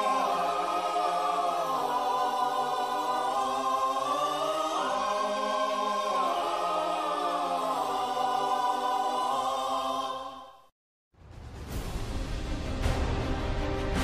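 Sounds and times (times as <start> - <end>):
choir singing sustained chords: 0.0 - 10.7.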